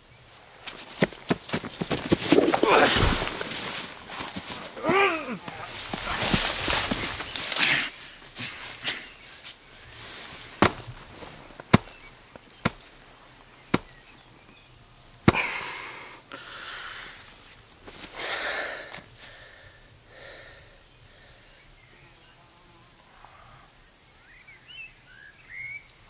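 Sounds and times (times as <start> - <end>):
punches landing: 0.7 - 7.9, 10.6 - 12.9, 13.7 - 14.1, 15.2 - 15.6
heavy gasping breaths: 2.4 - 6.6, 7.5 - 9.2, 15.3 - 17.4, 18.1 - 21.7.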